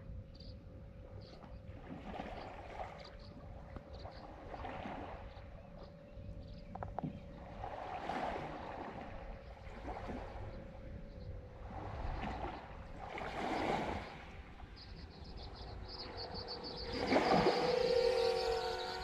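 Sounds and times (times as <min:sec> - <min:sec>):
lake waves washing on shore: 0:07.4 - 0:10.9, 0:11.5 - 0:19.0.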